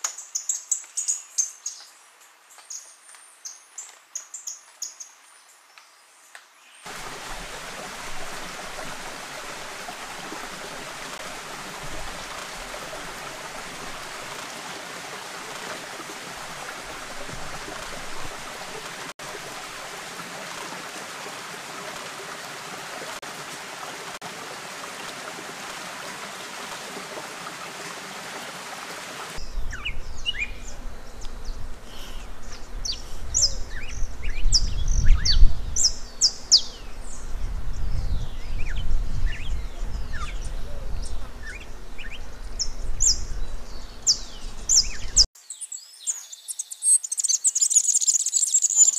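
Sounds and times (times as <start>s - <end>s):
songbirds chirping: 0.0s - 19.0s, 27.4s - 48.9s
stream rushing: 6.8s - 29.5s
wind rumble on microphone: 29.4s - 45.2s.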